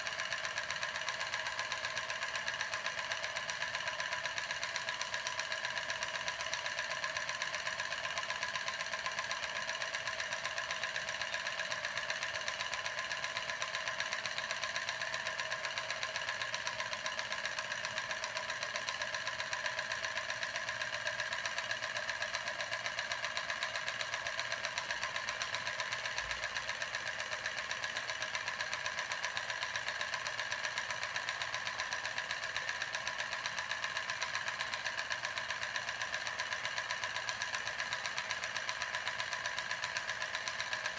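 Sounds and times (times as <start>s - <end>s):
fast ticking rattle: 0.0s - 40.9s.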